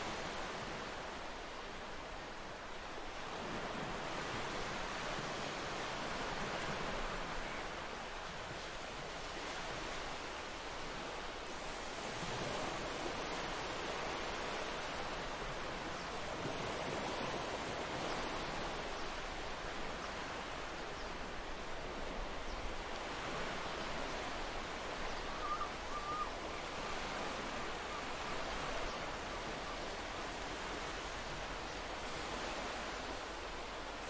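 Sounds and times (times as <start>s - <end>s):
sea surf rushing: 0.0s - 34.0s
wind: 0.0s - 34.0s
faint wavering whistle: 25.2s - 26.5s.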